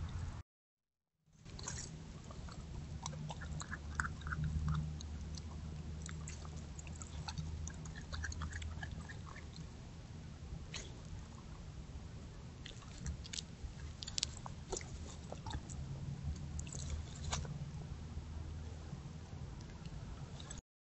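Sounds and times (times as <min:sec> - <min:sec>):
animal chewing bones: 0:01.4 - 0:09.8, 0:10.7 - 0:11.6, 0:12.6 - 0:17.6
steady low hum: 0:01.4 - 0:20.6.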